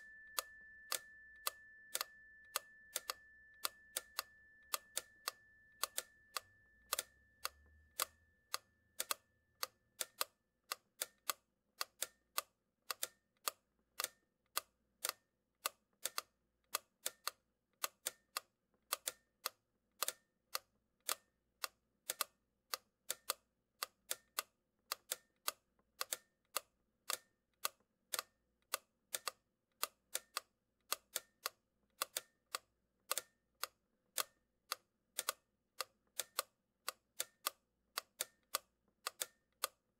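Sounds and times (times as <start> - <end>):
faint high steady tone: 0.0 - 9.9.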